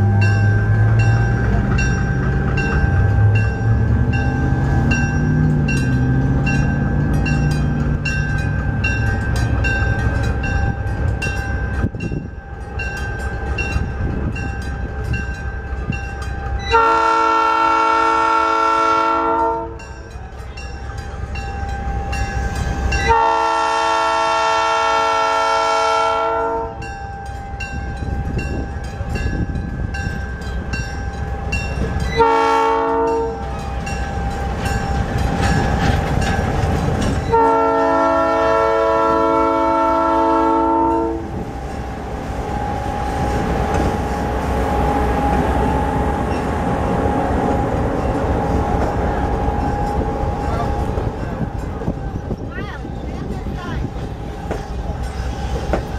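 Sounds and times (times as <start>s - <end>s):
diesel engine rumble: 0.0s - 16.5s
passenger cars rolling by: 0.0s - 25.6s, 26.3s - 55.9s
bell ringing: 0.1s - 16.8s
train air horn blasts: 16.6s - 19.8s, 23.0s - 26.9s, 32.1s - 33.6s, 37.3s - 41.4s.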